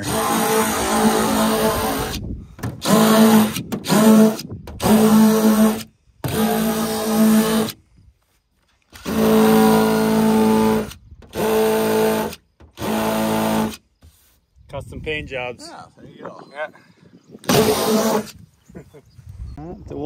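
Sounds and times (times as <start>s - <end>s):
rotary tool motor whine: 0.0s - 2.2s, 2.8s - 7.8s, 8.9s - 14.0s.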